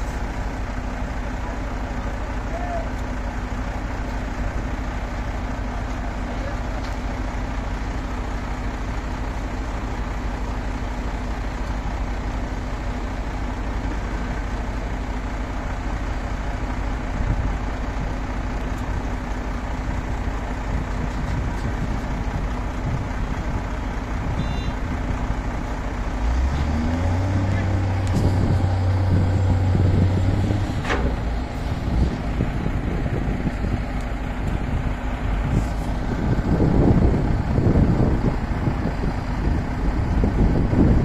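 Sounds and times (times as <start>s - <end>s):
diesel truck engine idling: 0.0s - 41.0s
deep hum: 26.2s - 33.8s.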